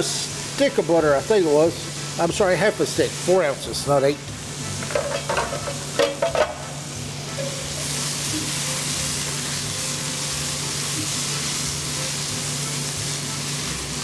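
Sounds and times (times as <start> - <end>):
butter sizzling in a pan: 0.0 - 14.0
spatula stirring vegetables: 4.4 - 14.0.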